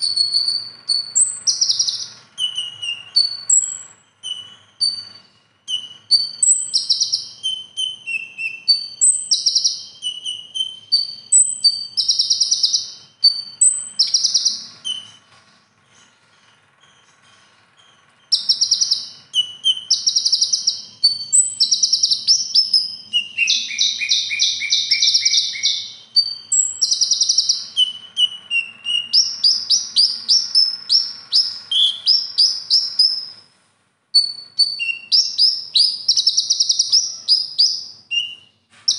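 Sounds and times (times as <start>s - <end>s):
sunbird singing: 0.0s - 15.3s, 15.9s - 33.4s, 34.2s - 38.9s.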